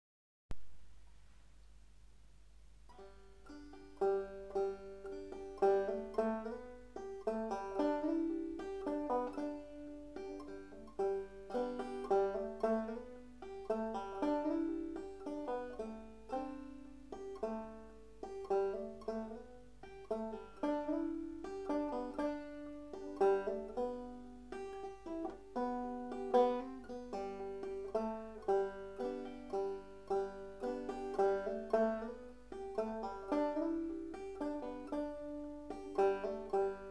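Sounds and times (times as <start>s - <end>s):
solo banjo playing slow air: 2.8s - 36.9s.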